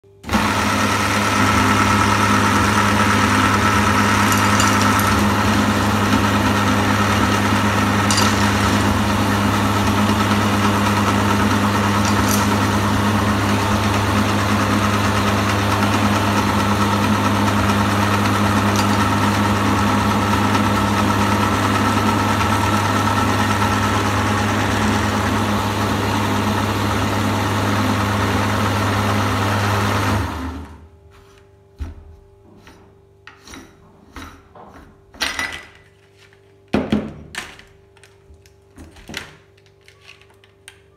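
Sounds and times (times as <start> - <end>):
meat grinder motor humming: 0.2 - 30.9.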